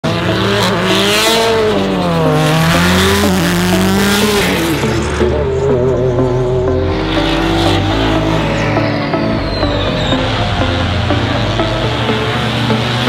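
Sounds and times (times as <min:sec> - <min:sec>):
race car engines revving: 0:00.0 - 0:13.0
tyre squeal: 0:09.2 - 0:11.4.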